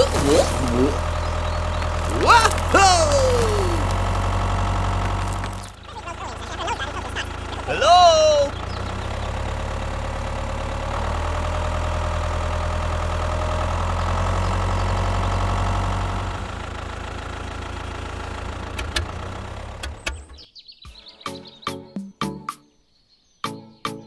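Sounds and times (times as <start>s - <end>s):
engine idling: 0.0s - 20.4s.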